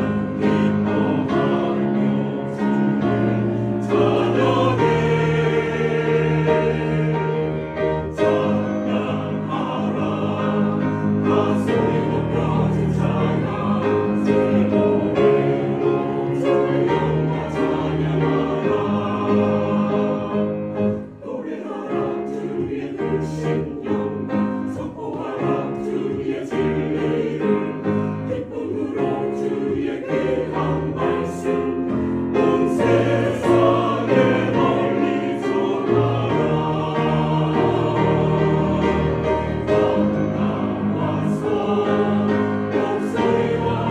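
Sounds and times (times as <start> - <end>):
mixed choir singing: 0.0 - 43.9.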